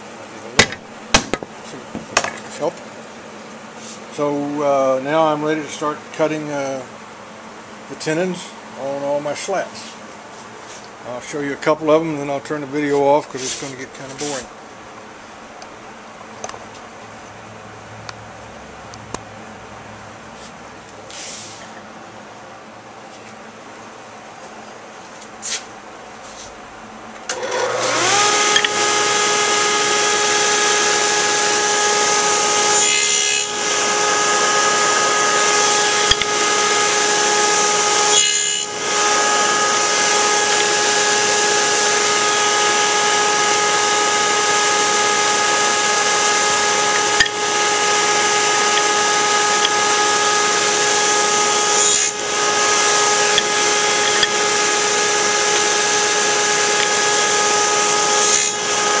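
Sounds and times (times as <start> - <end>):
table saw whining: 27.3 - 59.0.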